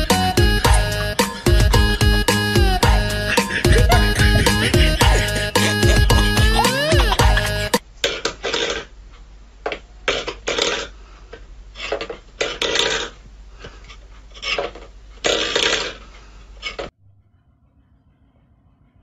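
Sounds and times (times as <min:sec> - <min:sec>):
music: 0:00.0 - 0:07.8
metal bowl scraping on wooden floor: 0:11.8 - 0:13.2, 0:13.9 - 0:16.0.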